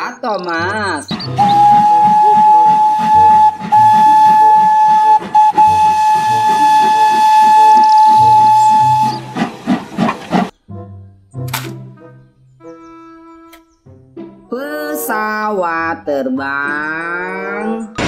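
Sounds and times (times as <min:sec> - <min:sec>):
steam locomotive puffs: 0:01.0 - 0:10.6
steam whistle blast: 0:01.3 - 0:10.5.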